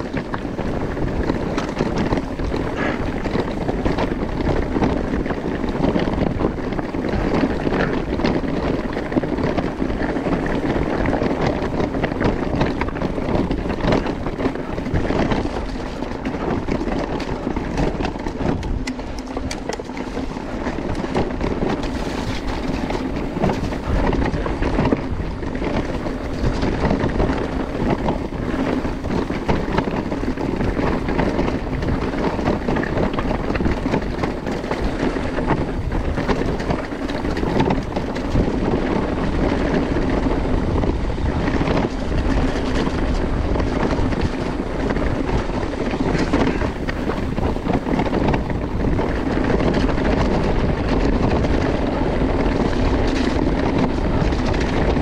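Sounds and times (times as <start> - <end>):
bike rattling: 0.0 - 55.0
bike tyres rumbling on stony trail: 0.0 - 55.0
wind on microphone: 0.0 - 55.0.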